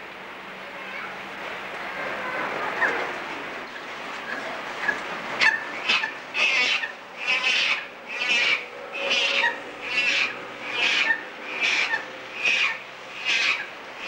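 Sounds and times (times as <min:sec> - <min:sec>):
baby chimpanzee calling: 0:05.4 - 0:13.7.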